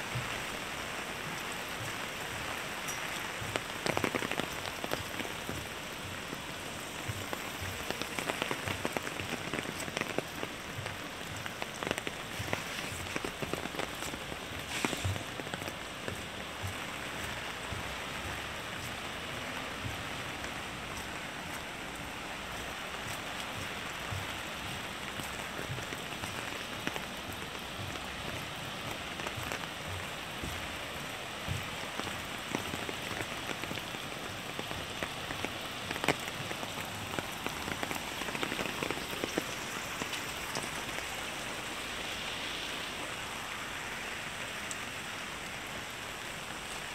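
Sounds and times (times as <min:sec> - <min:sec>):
raindrops tapping close by: 0:00.0 - 0:46.9
steady rain falling: 0:00.0 - 0:46.9.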